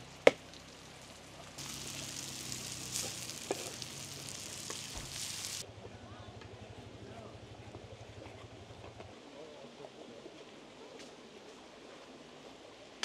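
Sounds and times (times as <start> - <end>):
vegetables sizzling in oil: 0.5 - 5.6.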